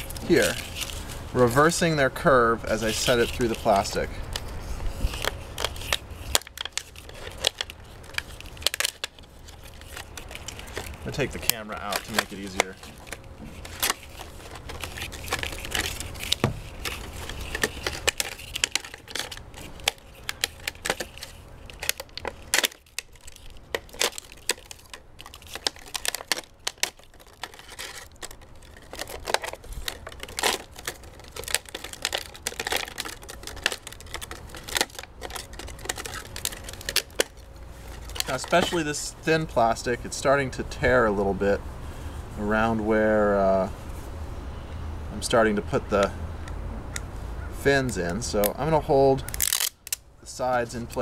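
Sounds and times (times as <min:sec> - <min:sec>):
plastic crinkling and clicking: 0:02.7 - 0:39.5, 0:49.2 - 0:51.0.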